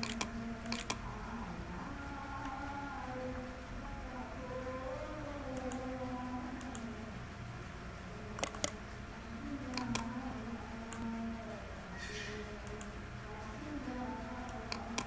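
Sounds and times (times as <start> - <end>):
computer mouse clicks: 0.0 - 1.0, 5.5 - 5.9, 6.6 - 6.9, 8.4 - 8.8, 9.7 - 10.1, 10.9 - 11.1, 12.6 - 13.0, 14.5 - 15.0.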